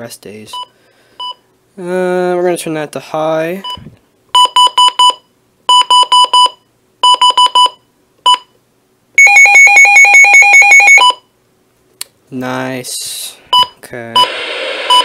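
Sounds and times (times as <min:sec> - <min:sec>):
shrill alarm beeps: 0:09.2 - 0:11.2.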